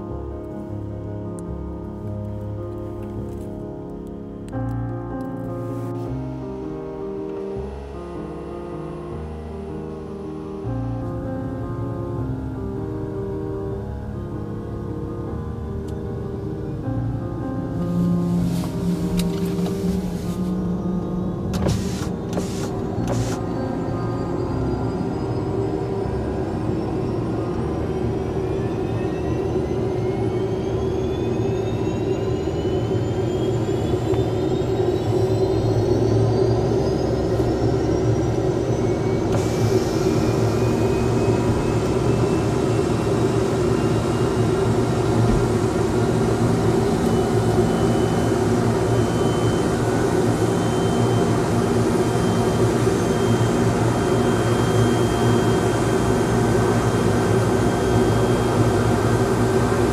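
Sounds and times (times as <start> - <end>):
rotor drone: 5.5 - 59.9
helicopter turbine engine whine: 20.6 - 59.9.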